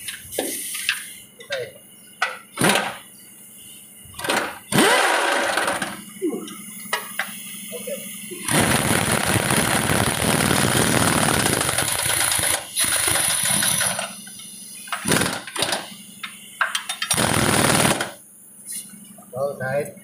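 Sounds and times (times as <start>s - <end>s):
pneumatic impact wrench hammering: 0.0s - 1.2s, 2.2s - 3.2s, 4.1s - 7.6s, 8.4s - 18.2s
air hissing: 0.0s - 1.4s, 2.0s - 19.0s.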